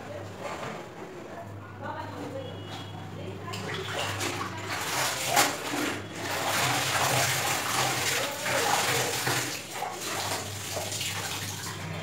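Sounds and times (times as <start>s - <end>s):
water splashing and sloshing: 2.6s - 12.0s
water pouring: 3.6s - 12.0s.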